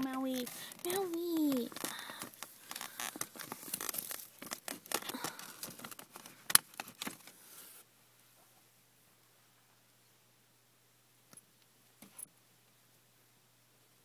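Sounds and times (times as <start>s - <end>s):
loud paper snap: 0.0s - 7.4s
paper crinkling and ripping: 0.0s - 7.8s.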